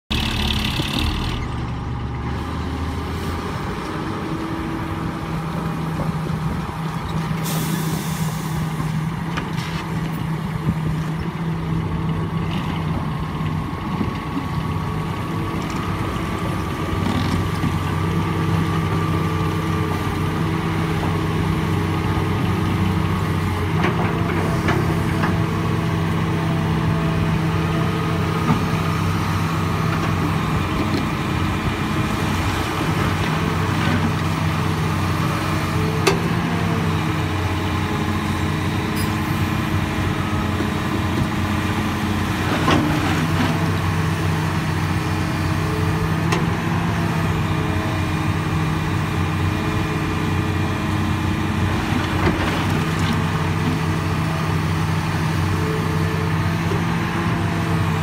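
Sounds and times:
heavy diesel engines running: 0:00.0 - 0:58.0
air brake hiss: 0:07.4 - 0:08.7.

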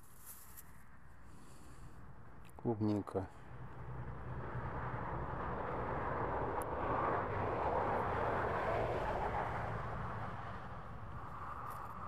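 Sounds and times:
passing vehicle rushing: 0:03.5 - 0:12.0.

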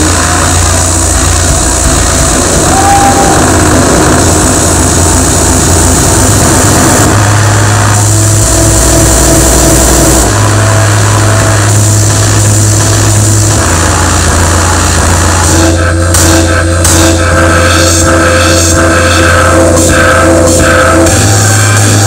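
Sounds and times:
distorted electronic drone: 0:00.0 - 0:22.0
heavy bass tone: 0:00.0 - 0:22.0.

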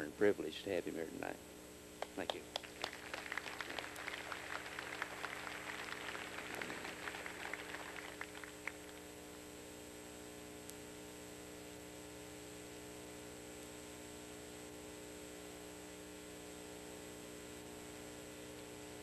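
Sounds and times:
sound system hum and hiss: 0:00.0 - 0:19.0
scattered applause: 0:02.1 - 0:09.2.

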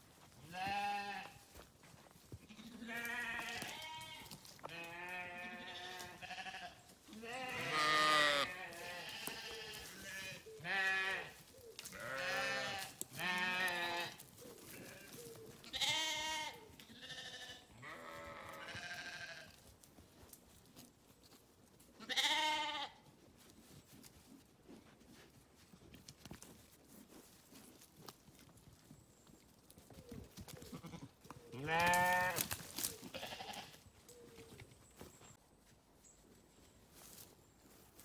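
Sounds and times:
sheep bleating: 0:00.4 - 0:01.6, 0:02.5 - 0:19.6, 0:22.0 - 0:23.0, 0:30.7 - 0:33.8.

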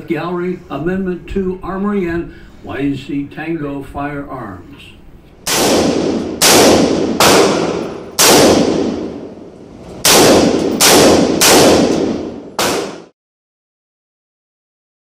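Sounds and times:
rifle shots echoing indoors: 0:05.4 - 0:13.1.

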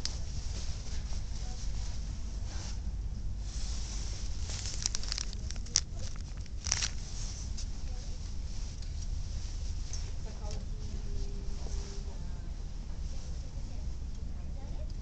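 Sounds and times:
steady low rumble: 0:00.0 - 0:15.0
plastic packaging crinkling: 0:04.2 - 0:07.4.

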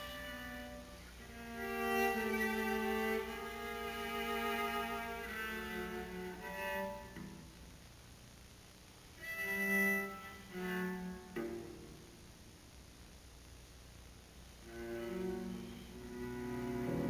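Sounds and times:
cello bowed notes: 0:00.0 - 0:07.5, 0:09.2 - 0:12.0, 0:14.6 - 0:17.0.

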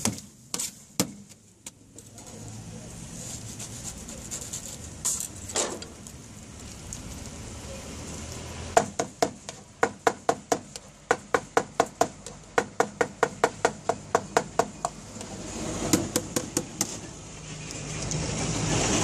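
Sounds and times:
background noise rush: 0:00.0 - 0:19.0
cleaver chopping meat on steel: 0:08.8 - 0:17.0.

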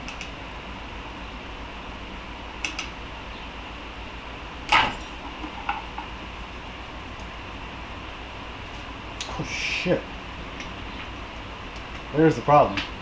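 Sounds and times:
loud metallic clank: 0:04.7 - 0:05.2
metal parts clinking: 0:04.7 - 0:05.2.

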